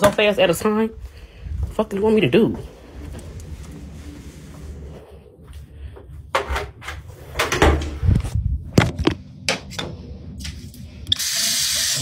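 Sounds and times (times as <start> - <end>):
knocks and clatters of objects moved: 6.1 - 10.5.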